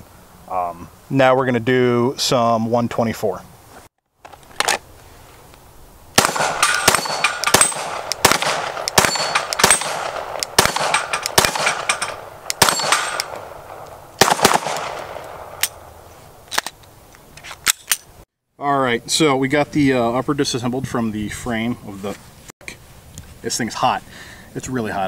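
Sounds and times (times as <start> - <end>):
pistol shots: 6.2 - 15.9
steel plates clanging: 9.0 - 9.9, 10.8 - 13.4.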